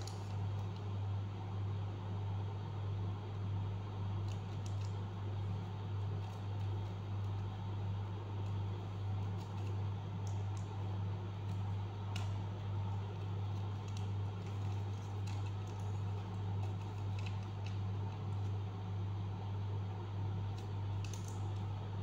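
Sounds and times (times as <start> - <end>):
paper crinkling and tapping: 8.4 - 18.5.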